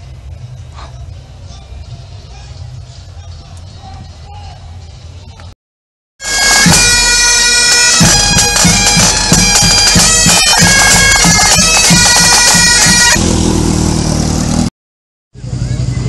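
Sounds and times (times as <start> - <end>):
bagpipes playing: 6.2 - 13.3
snare and bass drums: 6.3 - 13.4
motorcycle engine running: 8.1 - 14.7, 15.4 - 16.0.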